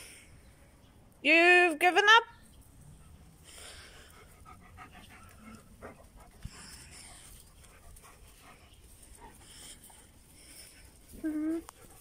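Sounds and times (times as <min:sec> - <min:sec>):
dog panting: 0:03.0 - 0:12.0.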